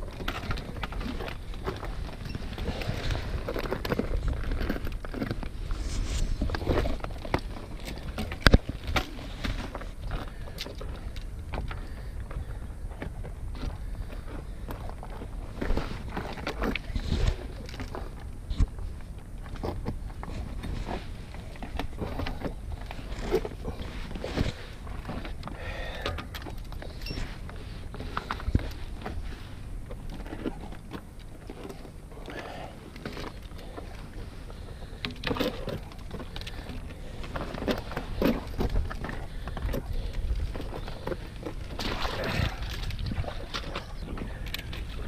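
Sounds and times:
footsteps scraping on boulders: 0.0 - 11.1, 11.7 - 45.0
steady low rumble: 0.0 - 45.0.

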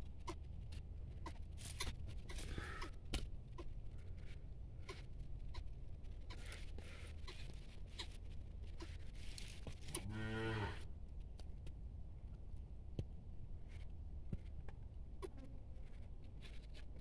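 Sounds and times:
cow mooing: 10.0 - 10.8.

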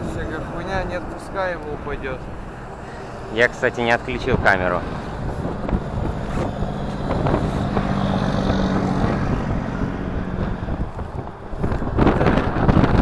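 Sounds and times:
vehicle passing on highway: 0.0 - 13.0.

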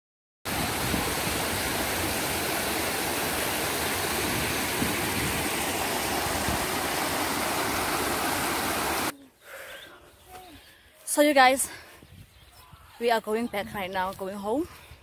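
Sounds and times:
river water rushing over weir: 0.5 - 9.1.

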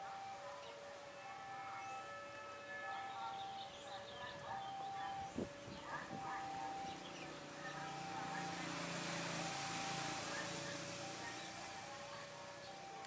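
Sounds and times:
birds chirping: 0.0 - 13.0
level crossing alarm two tones: 0.0 - 13.0
diesel locomotive engine: 4.5 - 13.0.

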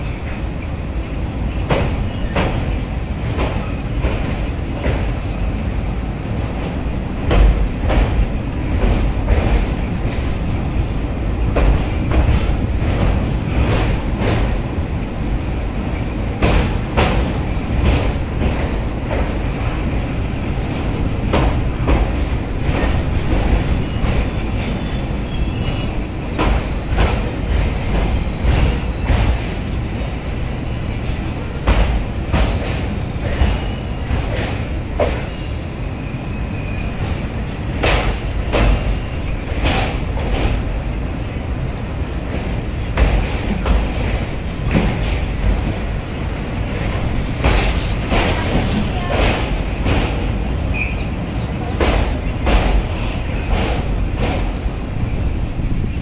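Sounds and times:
train rumbling on track: 0.0 - 56.0
wheels clacking over rail joints: 31.0 - 35.5.

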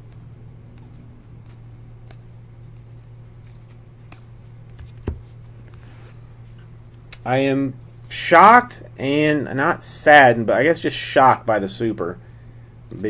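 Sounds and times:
cards clicking and snapping: 0.1 - 5.8.

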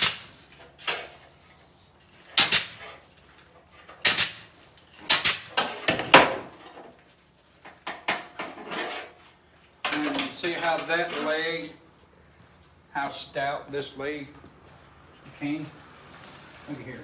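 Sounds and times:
pneumatic ring gun shots: 0.0 - 0.4, 2.4 - 2.9, 4.0 - 5.6.

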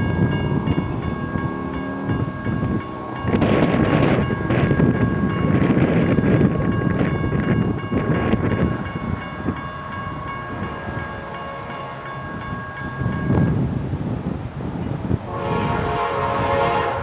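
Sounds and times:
low rushing rumble: 0.0 - 11.4
crossing bells ringing: 0.0 - 13.8.

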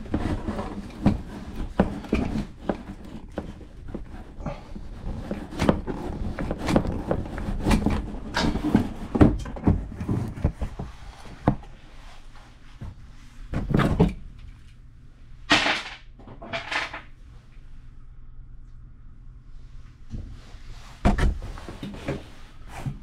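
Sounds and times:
handling knocks and clunks: 0.0 - 11.8.

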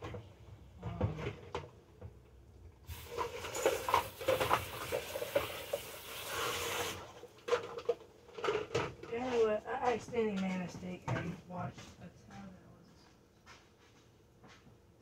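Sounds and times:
tap water running: 2.8 - 7.5.

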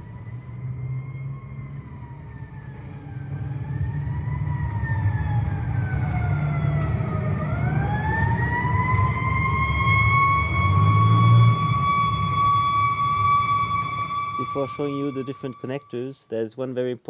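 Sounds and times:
siren wailing: 0.0 - 16.2
low rumble: 5.0 - 15.9.

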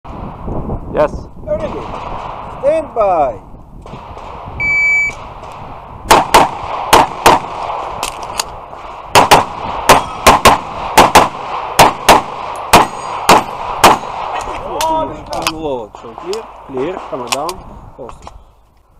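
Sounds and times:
pistol shots: 5.2 - 8.2, 8.8 - 14.5.

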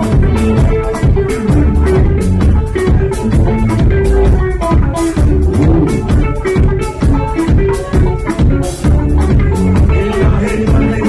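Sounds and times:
drum kit beat: 0.0 - 10.0
electric bass: 0.0 - 10.0
electric guitar: 0.0 - 11.0.

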